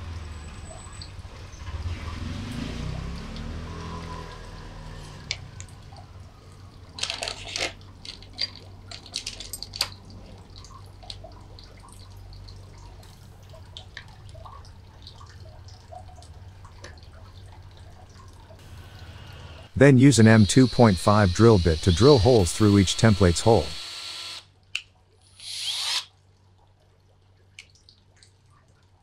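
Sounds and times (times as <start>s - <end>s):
plastic parts clicking and tapping: 7.0s - 10.0s.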